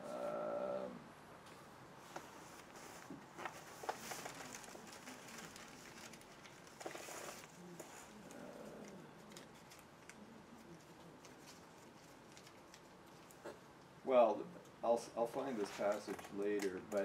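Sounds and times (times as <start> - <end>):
paper rustling: 2.1 - 13.4, 15.3 - 17.0.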